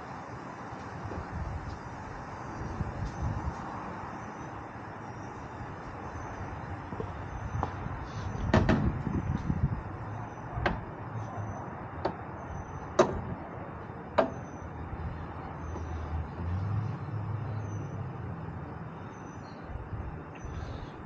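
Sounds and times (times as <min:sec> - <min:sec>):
metal bar knocking against mounts: 0:14.2 - 0:14.5.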